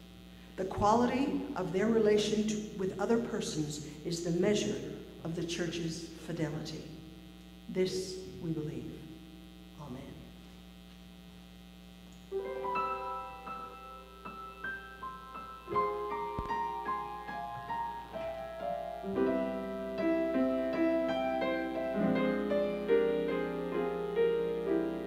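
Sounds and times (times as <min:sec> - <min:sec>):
electrical hum: 0:00.0 - 0:25.0
piano playing: 0:12.3 - 0:25.0.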